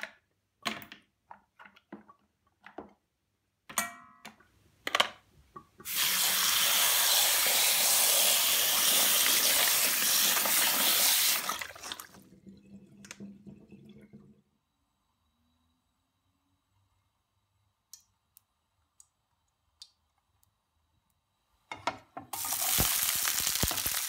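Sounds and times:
tap water running into metal bowl: 5.7 - 14.3, 22.3 - 24.0.

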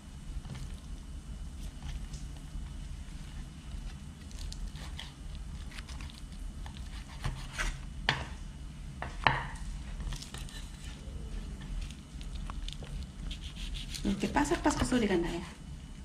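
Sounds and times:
knife cutting crunchy pancakes: 3.8 - 7.8.

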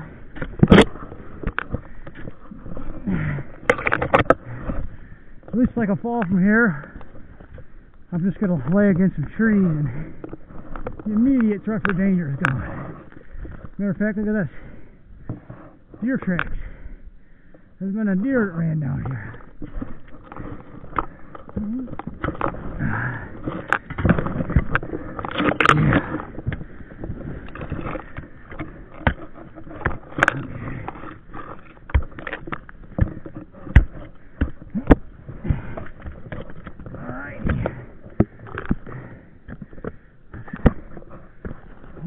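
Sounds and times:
ice tools scraping frozen ground: 17.9 - 42.0.

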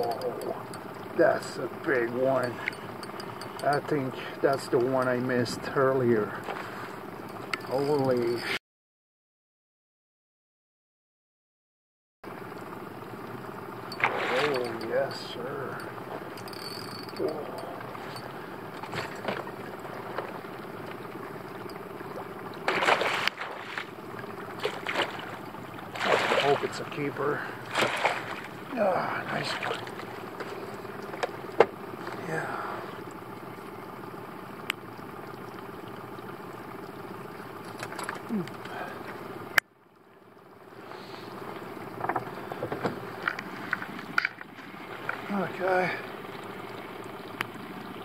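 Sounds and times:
outboard motor running: 0.0 - 8.6, 12.3 - 48.0
fish splashing in water: 12.4 - 33.8.

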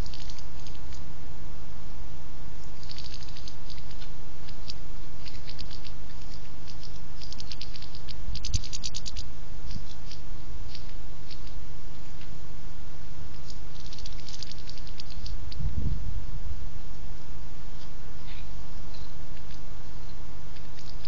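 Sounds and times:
birds cracking seed: 0.0 - 1.1, 2.6 - 12.4, 13.3 - 15.7, 17.8 - 21.0
steady low hum: 0.0 - 21.0.

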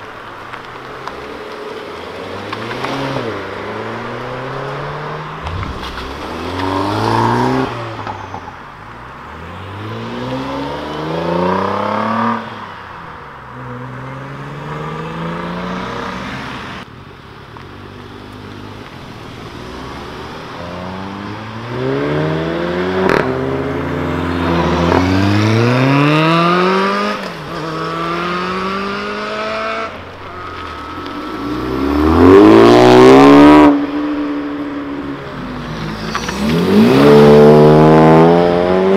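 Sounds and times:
car engines accelerating: 0.0 - 16.9, 17.8 - 38.9
sharp crack: 5.4 - 8.1.

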